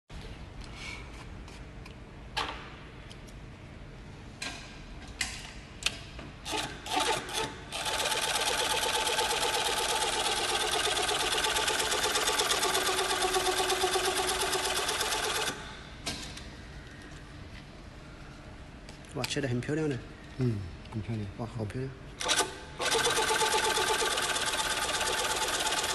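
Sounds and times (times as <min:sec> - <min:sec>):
industrial sewing machine running: 0:06.5 - 0:15.6, 0:22.2 - 0:25.9.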